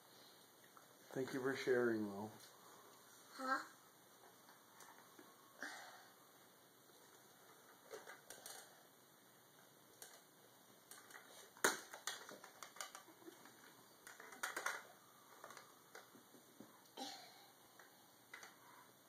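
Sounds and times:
plastic toys clicking and knocking: 7.1s - 8.8s, 9.6s - 16.7s, 17.7s - 18.6s.

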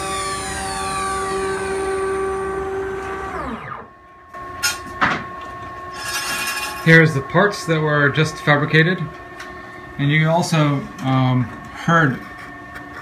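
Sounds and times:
cnc router running and winding down: 0.0s - 13.0s.

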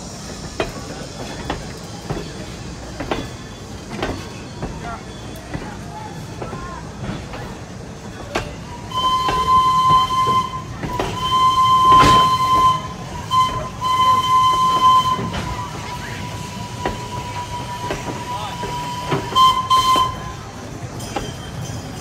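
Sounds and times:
people talking: 4.6s - 21.2s
steam locomotive whistle blasts: 8.8s - 20.5s.

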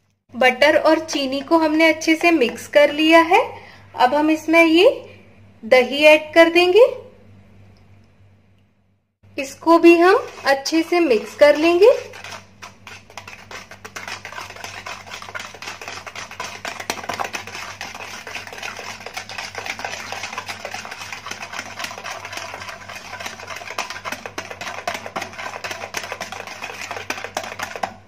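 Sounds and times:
whisk clicking against plastic bowl: 10.0s - 28.0s.

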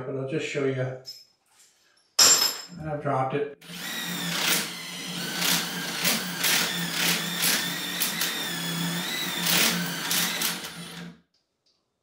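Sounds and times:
drill bit scraping grinds: 3.6s - 11.1s
cordless drill motor whining: 3.6s - 11.2s.

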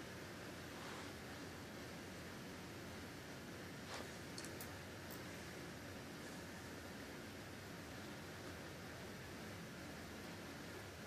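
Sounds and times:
recording hiss: 0.0s - 11.0s.

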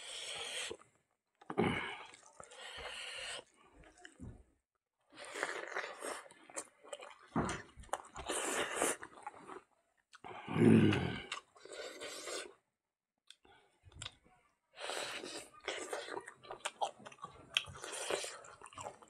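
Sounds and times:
noisy chewing with wet smacking: 5.4s - 10.3s, 15.2s - 19.0s.

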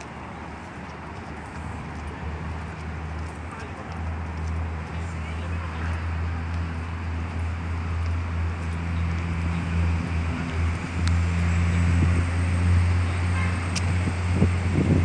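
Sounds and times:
outdoor traffic noise: 0.0s - 15.0s.

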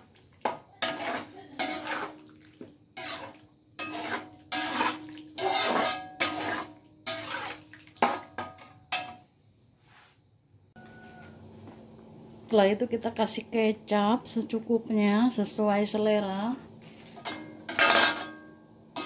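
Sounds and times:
metal spatula scraping a wok: 0.5s - 2.3s, 2.9s - 8.7s.

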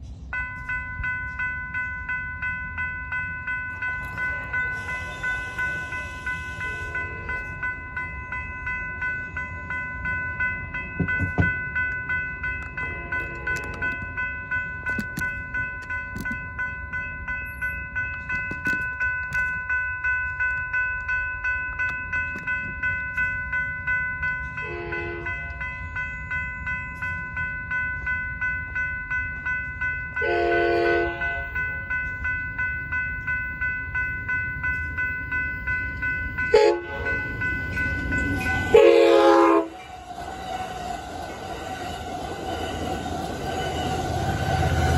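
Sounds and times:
railroad crossing bell ringing: 0.0s - 44.9s
train horn blasts: 5.4s - 7.5s, 24.6s - 25.4s, 30.2s - 31.6s, 36.5s - 37.2s, 38.6s - 39.9s.

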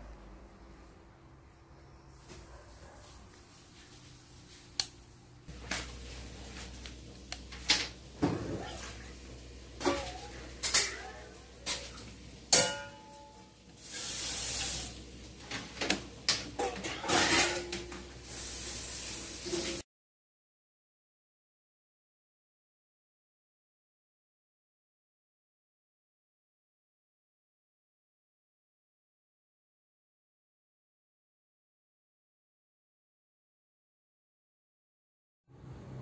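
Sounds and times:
dishes clinking: 9.8s - 13.5s, 16.3s - 18.0s.

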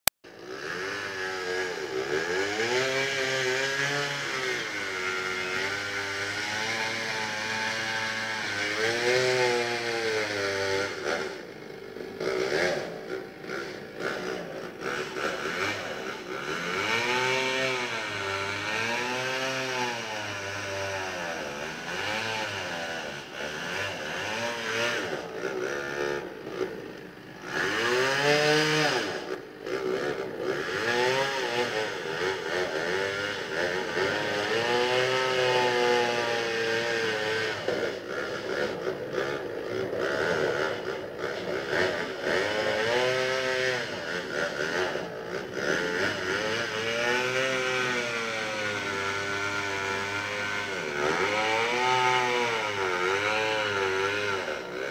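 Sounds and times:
engine revving: 0.3s - 54.9s
steady engine rumble: 22.6s - 34.1s, 37.6s - 42.8s.

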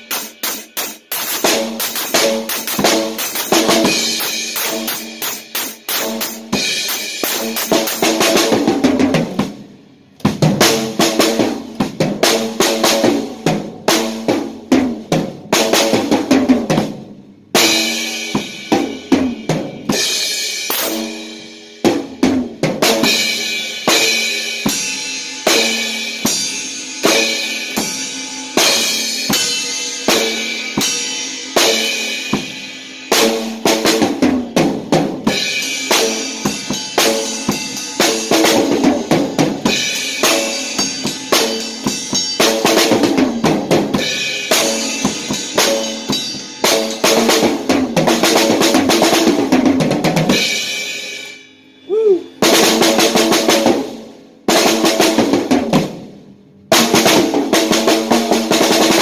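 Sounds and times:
drum kit played fast: 0.0s - 59.0s.

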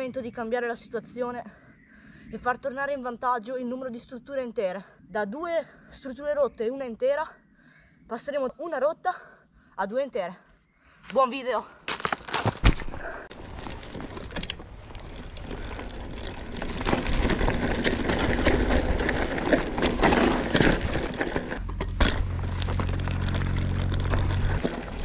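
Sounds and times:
bike tyres crunching on gravel: 11.9s - 25.0s
bike clicks and rattles: 13.3s - 25.0s.

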